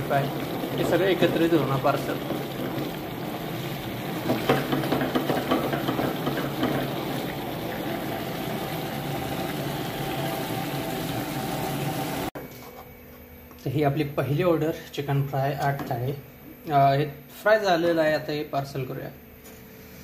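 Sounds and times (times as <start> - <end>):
food sizzling in gravy: 0.0 - 12.3.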